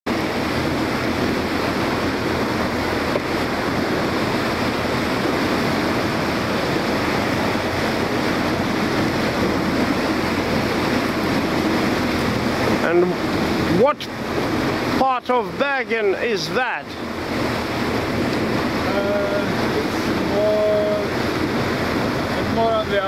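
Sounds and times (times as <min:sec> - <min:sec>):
choppy sea water: 0:00.0 - 0:23.0
wind on microphone: 0:00.1 - 0:15.0, 0:16.8 - 0:23.0.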